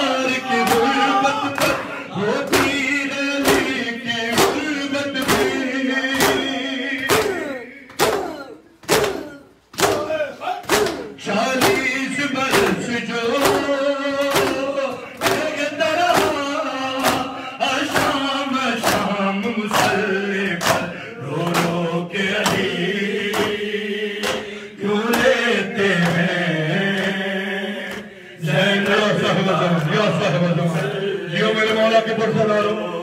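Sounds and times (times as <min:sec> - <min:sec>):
male reciter leading: 0:00.0 - 0:33.0
men chanting a lament: 0:00.0 - 0:33.0
hands slapping chests: 0:00.6 - 0:02.8, 0:03.4 - 0:11.9, 0:12.5 - 0:16.4, 0:17.0 - 0:23.6, 0:24.2 - 0:25.4, 0:26.0 - 0:26.3, 0:27.8 - 0:28.2.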